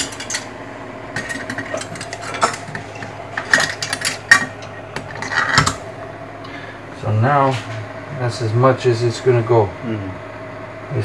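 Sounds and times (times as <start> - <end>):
metallic clinks and knocks: 0.0 - 0.5, 1.2 - 5.8.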